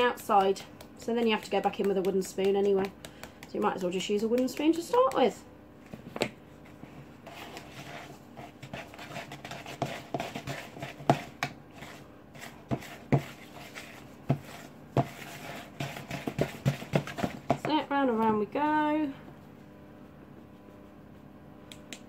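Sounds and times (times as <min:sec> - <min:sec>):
wooden spoon stirring dough: 0:00.0 - 0:05.4, 0:06.6 - 0:18.7.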